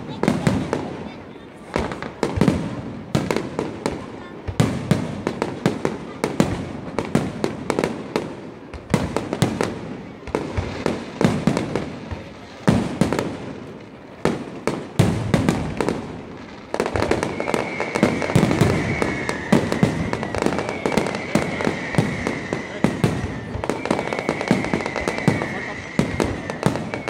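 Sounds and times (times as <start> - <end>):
fireworks bursting with sharp bangs: 0.0 - 27.0
steady high whistle: 17.0 - 27.0.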